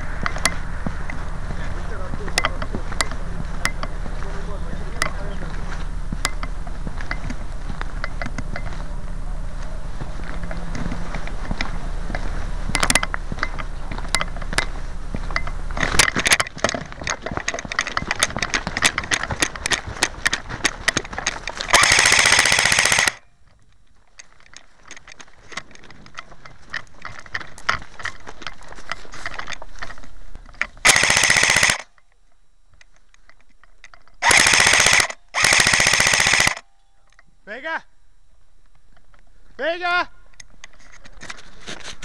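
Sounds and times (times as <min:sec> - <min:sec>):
running footfalls: 0:00.0 - 0:31.6
rustling through grass and brush: 0:00.0 - 0:31.7, 0:40.5 - 0:42.0
rapid-fire gun bursts: 0:21.7 - 0:23.2, 0:30.8 - 0:31.9, 0:34.2 - 0:36.6.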